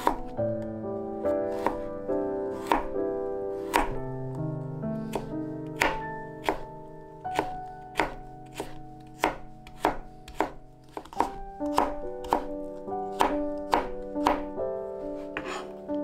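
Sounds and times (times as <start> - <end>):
knife chopping on cutting board: 0.0 - 0.3, 1.5 - 1.9, 2.6 - 2.9, 3.6 - 4.0, 5.1 - 6.7, 7.3 - 12.5, 13.1 - 14.5, 15.2 - 15.8
soft background music: 0.0 - 16.0.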